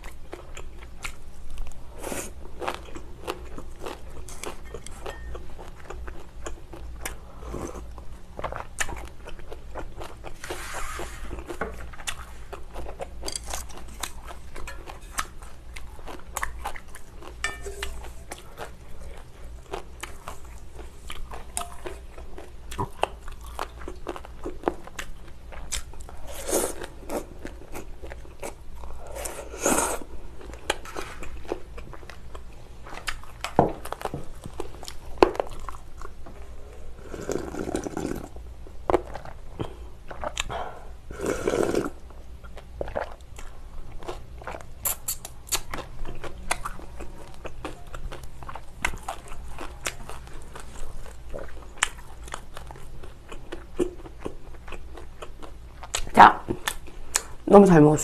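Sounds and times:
chewing and crunching: 0.0 - 57.4
slurping: 37.0 - 38.3, 41.1 - 42.0
wet mouth clicks: 44.8 - 45.7.

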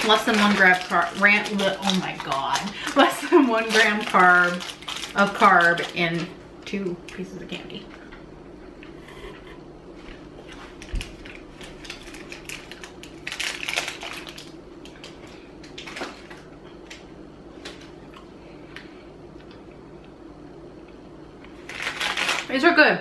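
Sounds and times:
foil wrapper crinkling: 0.0 - 7.9, 10.4 - 18.0, 21.6 - 22.6.

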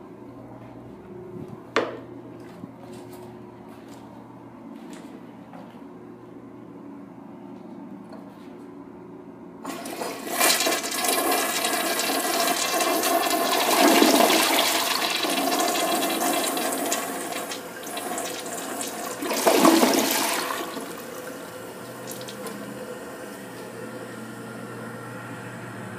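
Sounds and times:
water running steadily: 9.6 - 23.2
toilet flushing: 9.6 - 23.8.

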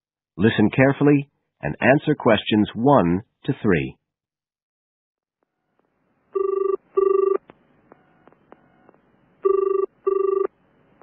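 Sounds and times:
telephone double ringing: 6.4 - 7.4, 9.4 - 10.5.

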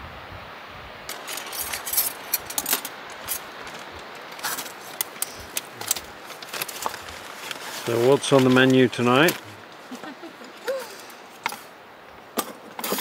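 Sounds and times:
wind noise on microphone: 0.0 - 4.6
small metal items clinking: 1.1 - 9.4.

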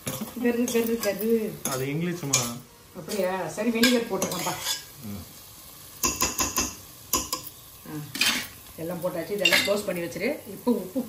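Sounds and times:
metal spoon scraping a pan: 0.0 - 5.0, 6.0 - 8.6.

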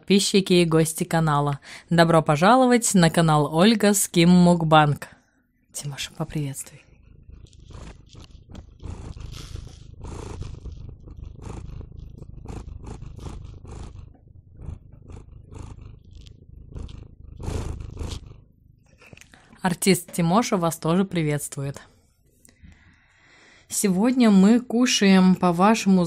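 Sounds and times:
steady low rumble: 5.8 - 19.2
cat chewing and smacking: 6.7 - 19.6.

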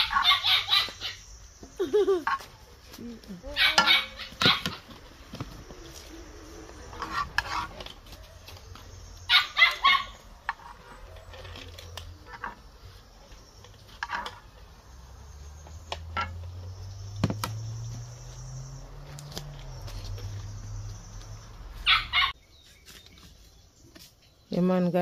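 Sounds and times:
dog barking: 0.0 - 1.0, 3.6 - 4.8, 9.3 - 10.2, 21.8 - 22.3.

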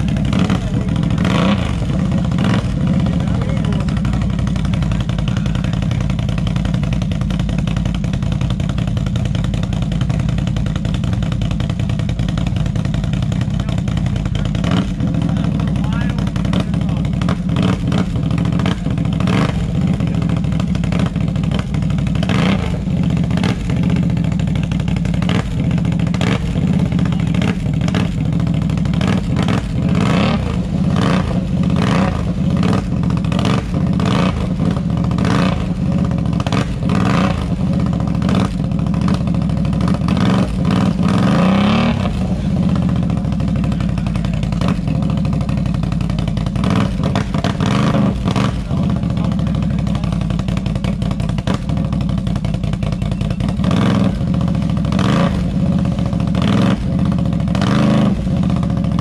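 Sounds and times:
atv engine running loud: 0.0 - 59.0.

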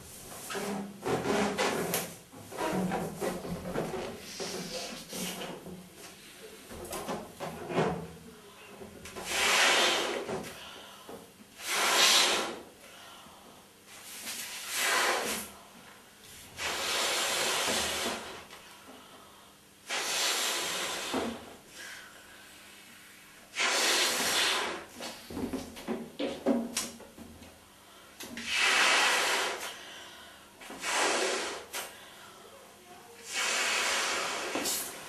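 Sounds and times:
breaths blowing up balloon: 9.2 - 10.5, 11.6 - 12.6, 14.5 - 15.5, 16.6 - 18.5, 19.8 - 22.0, 23.5 - 25.0, 28.4 - 29.8, 30.7 - 32.0, 33.2 - 35.0
in-breaths: 10.4 - 11.3, 12.8 - 13.7, 18.6 - 19.7, 20.8 - 23.4, 27.6 - 28.2, 29.5 - 30.6, 31.8 - 32.7.

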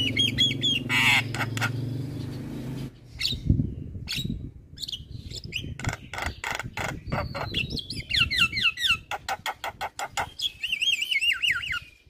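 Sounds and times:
bird chattering and clicking: 0.0 - 1.8, 5.3 - 10.5
bird harsh rasping call: 0.0 - 3.4, 5.0 - 12.0.

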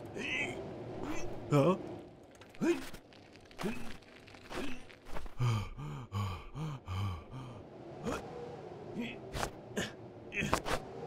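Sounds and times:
man grunting with effort: 4.6 - 8.3
man gasping: 5.3 - 7.6.

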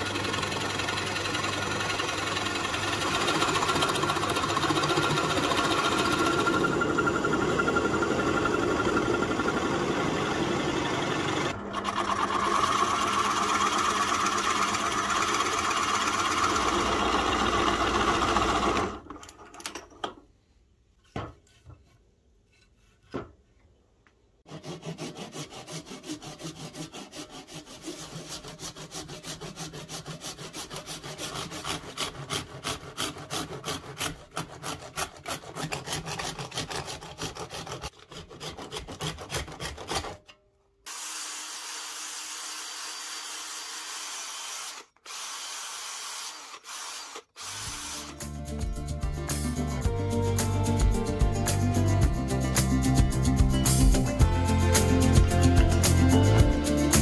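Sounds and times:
cordless drill sanding: 0.0 - 18.9, 40.9 - 48.3
handsaw sawing coconut shell: 0.0 - 18.9, 24.4 - 40.3, 40.9 - 48.4
drill press boring into wood: 0.0 - 19.4, 40.9 - 48.2.

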